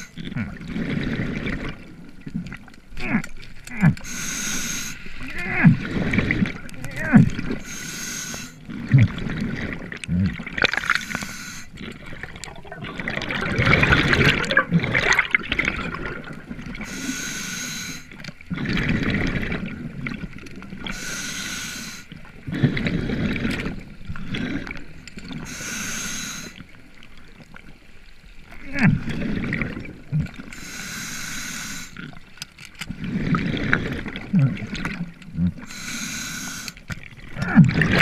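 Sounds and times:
bubbling exhales: 0:00.0 - 0:26.6, 0:28.6 - 0:32.2, 0:32.9 - 0:38.0
regulator hissing inhales: 0:04.0 - 0:05.2, 0:07.6 - 0:08.6, 0:11.0 - 0:11.7, 0:16.9 - 0:18.1, 0:20.9 - 0:22.1, 0:25.5 - 0:26.6, 0:30.6 - 0:32.0, 0:35.7 - 0:36.8.

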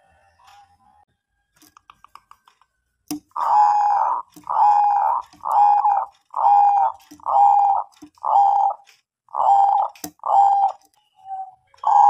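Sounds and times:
dove cooing: 0:03.4 - 0:12.0.

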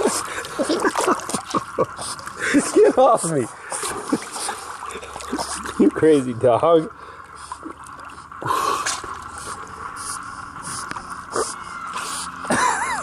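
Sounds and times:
pool water splashing: 0:00.0 - 0:13.0.

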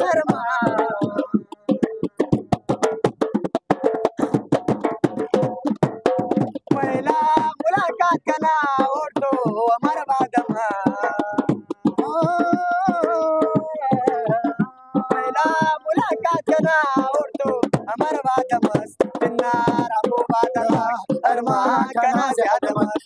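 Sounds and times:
person singing wavering phrases: 0:00.0 - 0:01.9, 0:06.7 - 0:23.0
sharp percussive hits: 0:00.0 - 0:23.0.

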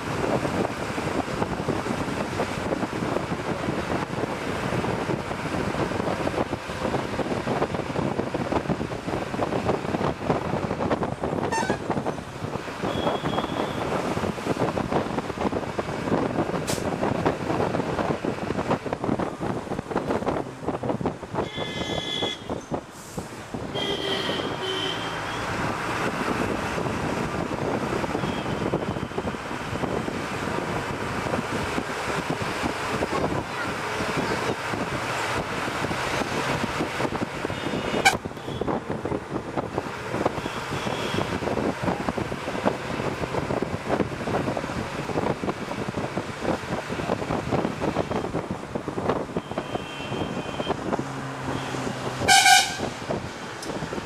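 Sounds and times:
bus engine and road noise: 0:00.0 - 0:54.0
horn toots: 0:11.4 - 0:12.0, 0:21.4 - 0:22.6, 0:51.5 - 0:53.0.

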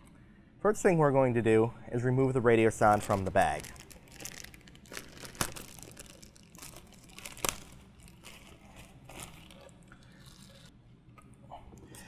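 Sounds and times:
plastic bag crinkling: 0:02.8 - 0:10.7
sharp plastic crack: 0:03.0 - 0:08.4.

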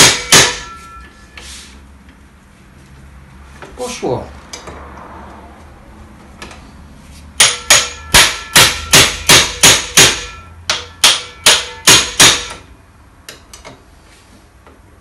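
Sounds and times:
hammer striking impact screwdriver: 0:07.4 - 0:12.7.

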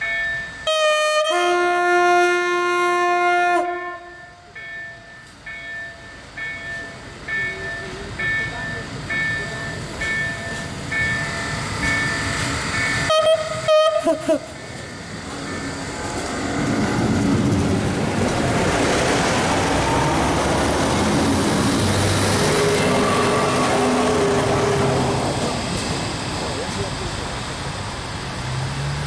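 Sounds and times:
diesel train passing: 0:00.0 - 0:29.0
train horn blasting: 0:00.7 - 0:04.5, 0:13.0 - 0:14.2, 0:22.4 - 0:25.2.

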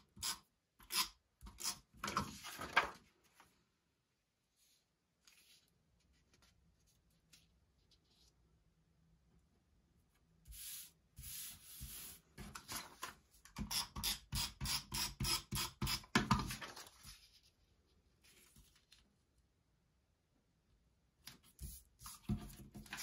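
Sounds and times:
paper rustling on cutting mat: 0:02.1 - 0:03.6, 0:04.6 - 0:08.4, 0:16.4 - 0:19.1.

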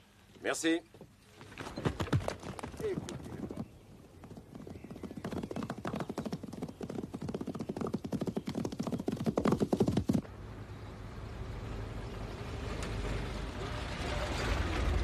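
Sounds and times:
galloping horse hoofbeats: 0:01.4 - 0:10.2.

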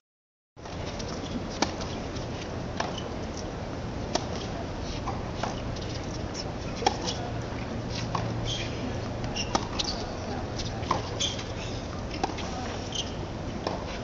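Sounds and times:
tennis ball struck by racket: 0:01.5 - 0:02.0, 0:04.1 - 0:06.2, 0:06.8 - 0:07.2, 0:07.9 - 0:14.0.

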